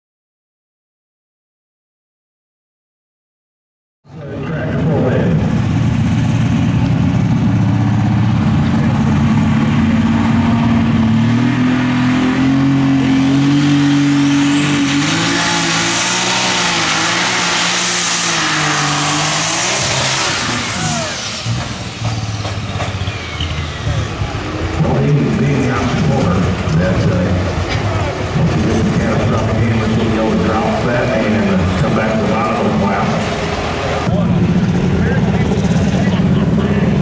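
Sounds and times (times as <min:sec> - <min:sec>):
high turbo whine: 0:04.1 - 0:37.0
tractor engine running under load: 0:04.2 - 0:12.8, 0:19.9 - 0:37.0.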